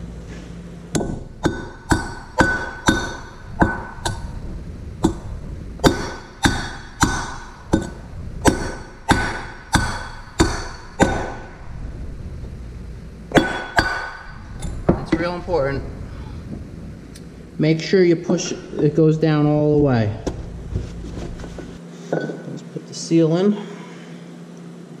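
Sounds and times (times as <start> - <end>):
hammer striking metal bearing: 0.9 - 4.3, 5.0 - 11.4, 13.3 - 14.3.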